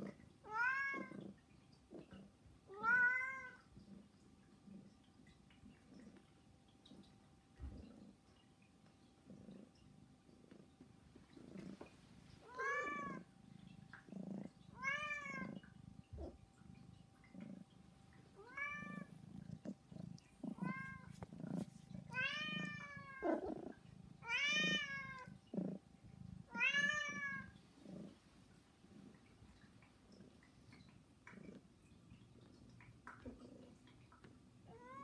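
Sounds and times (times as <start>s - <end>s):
cats meowing: 0.4s - 1.2s, 2.7s - 3.6s, 11.8s - 13.3s, 14.6s - 16.4s, 18.3s - 25.4s, 26.4s - 27.6s, 34.7s - 35.0s.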